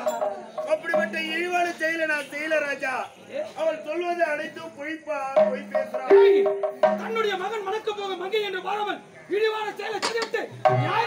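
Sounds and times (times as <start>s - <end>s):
hand drums playing: 0.0s - 1.5s, 5.4s - 7.5s, 10.6s - 11.0s
deep drum stroke bending down: 5.4s - 7.3s.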